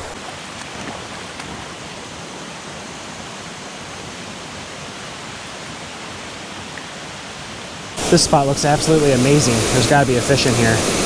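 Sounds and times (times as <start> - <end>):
water rushing over rocks: 8.0 - 11.0.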